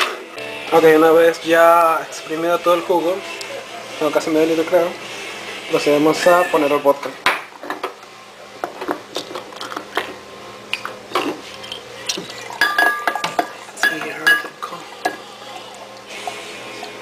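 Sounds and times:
glassware clicking and knocking: 12.6 - 15.2.

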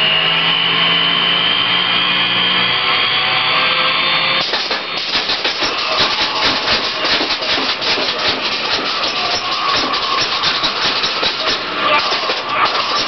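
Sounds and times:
rough pulsing electrical rattle: 4.4 - 13.0.

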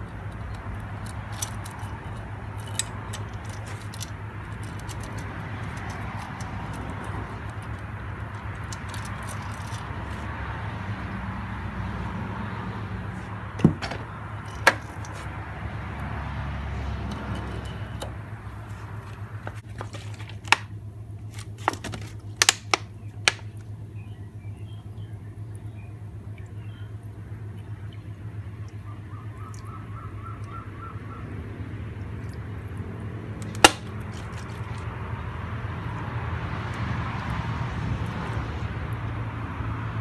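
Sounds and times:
metal parts clinking: 0.0 - 10.2, 13.8 - 15.3.

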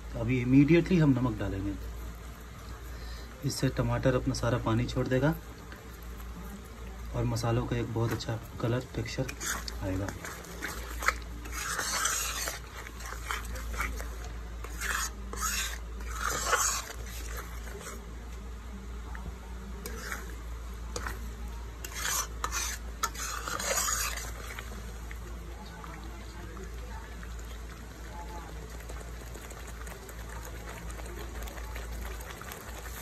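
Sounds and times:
paste sizzling in oil: 0.0 - 33.0
metal spatula scraping a pan: 7.8 - 18.1, 19.8 - 25.0.

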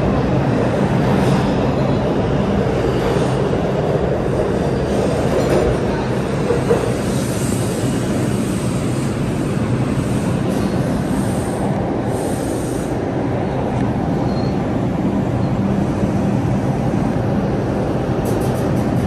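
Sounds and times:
subway train wheels rumbling: 0.0 - 19.0.

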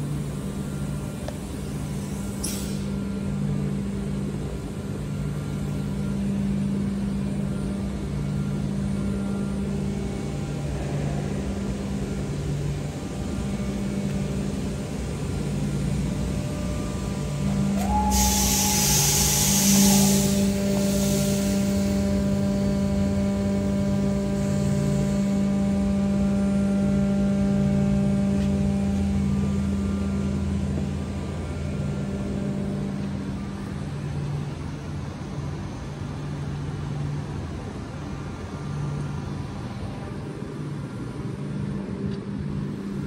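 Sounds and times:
low machine hum: 0.0 - 43.0
steady whine: 0.0 - 43.0
loud rushing hiss: 17.4 - 22.5.

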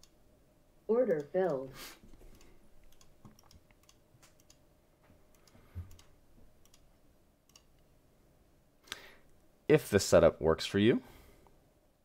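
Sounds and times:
computer mouse clicks: 2.3 - 4.6, 5.3 - 6.9, 7.5 - 7.9.

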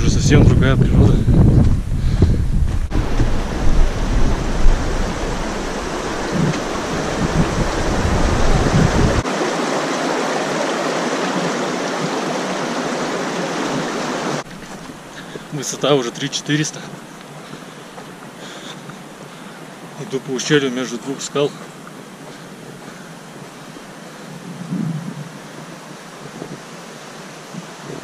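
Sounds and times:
wind buffeting microphone: 0.0 - 9.3, 21.5 - 26.8
outdoor rushing noise: 1.6 - 9.3.

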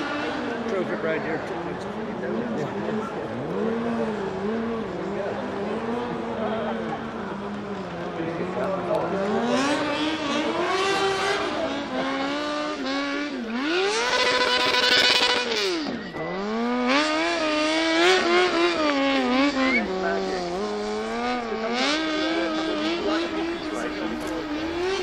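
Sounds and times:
motorcycle engine revving: 0.0 - 25.0.

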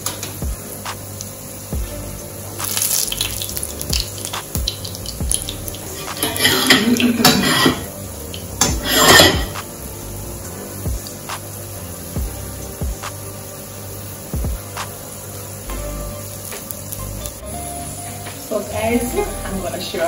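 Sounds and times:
fork scraping frying pan: 5.9 - 7.9, 8.6 - 9.6.

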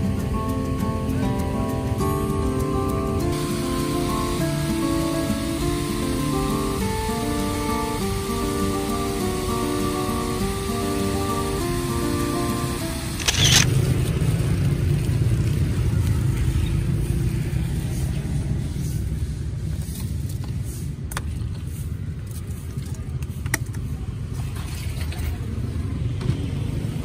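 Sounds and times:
background music: 0.0 - 13.7
street traffic rumble: 0.0 - 27.0
sharp clicks: 13.1 - 13.7.

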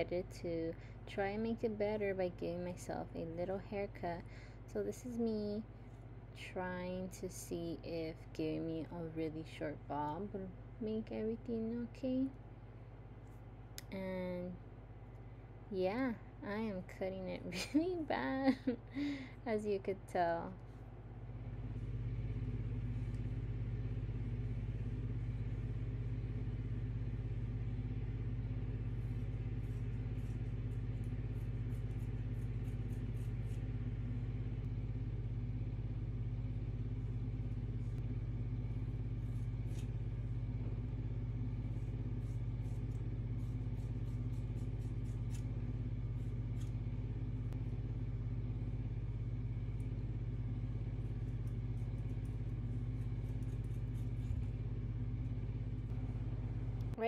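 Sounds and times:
low hum: 0.0 - 57.0
scissors snipping hair: 29.6 - 33.6, 42.2 - 45.6, 46.2 - 46.8, 51.3 - 54.5.

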